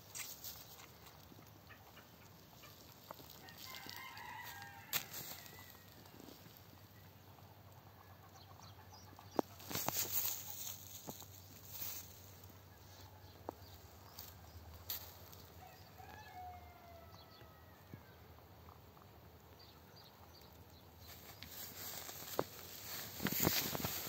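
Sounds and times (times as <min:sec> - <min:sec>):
straw rustling: 0:00.0 - 0:06.7, 0:09.5 - 0:13.1, 0:21.0 - 0:24.0
light hoof steps: 0:00.0 - 0:06.9, 0:09.3 - 0:24.0.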